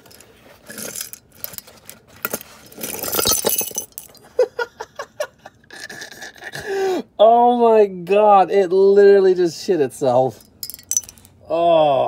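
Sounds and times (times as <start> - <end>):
steel balls clinking on pavement: 0.0 - 4.3, 10.2 - 11.4.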